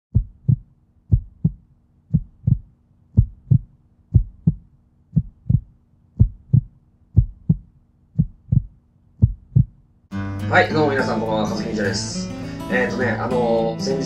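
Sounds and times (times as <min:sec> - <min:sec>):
heartbeat thumps: 0:00.1 - 0:09.8.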